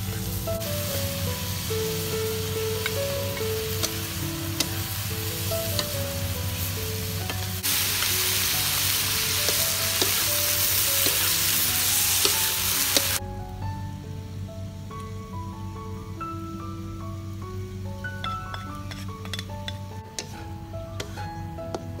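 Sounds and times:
food sizzling in a wok: 0.0s - 13.2s, 15.9s - 22.0s
light background music: 0.0s - 22.0s
spatula clicking against pan: 18.5s - 20.3s.

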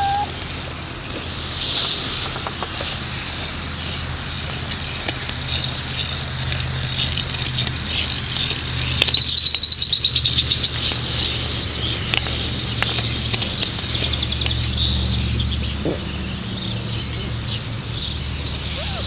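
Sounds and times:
fast high bird trill: 0.0s - 0.4s, 8.3s - 10.9s
high bird chirps and ticks: 4.7s - 19.0s.

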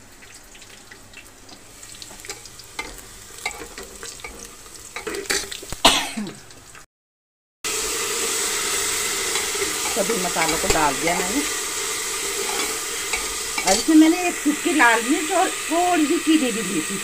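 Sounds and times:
onions and spices sizzling in oil: 0.0s - 6.8s, 7.7s - 17.0s
kitchen utensils clicking: 2.2s - 5.6s, 9.3s - 11.5s, 12.2s - 14.4s
utensil scraping clatter: 9.2s - 14.1s.

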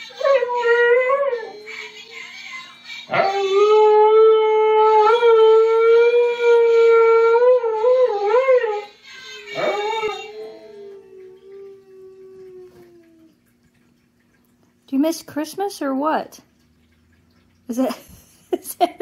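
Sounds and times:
husky howling: 3.1s - 13.4s.

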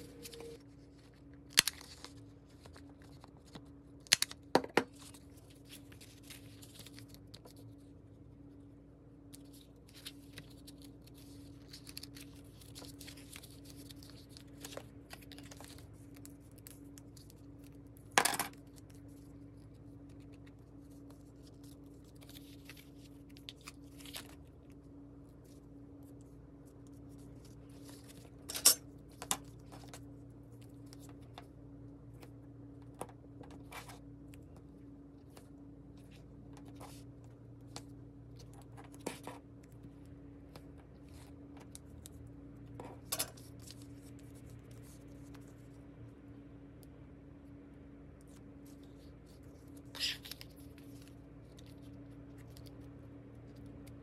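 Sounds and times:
paper rustling: 0.0s - 4.2s, 4.9s - 7.9s, 9.4s - 17.7s
steady low hum: 0.0s - 54.0s.

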